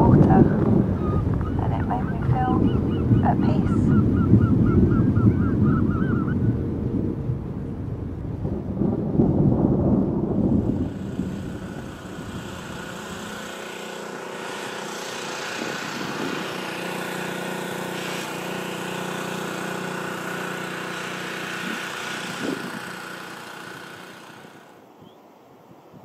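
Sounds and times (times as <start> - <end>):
engine droning: 10.1 - 25.0
wide hiss: 10.7 - 24.9.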